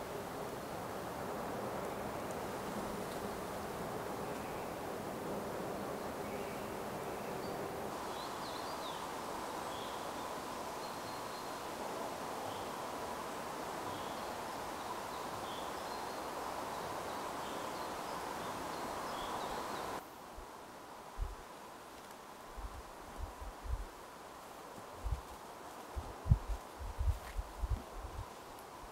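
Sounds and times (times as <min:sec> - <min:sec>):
wind buffeting microphone: 0:25.0 - 0:25.2, 0:26.0 - 0:28.3.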